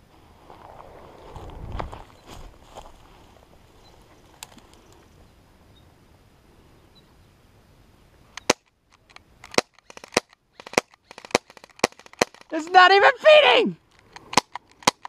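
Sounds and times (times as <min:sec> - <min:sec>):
faint rustle: 0:00.0 - 0:10.1.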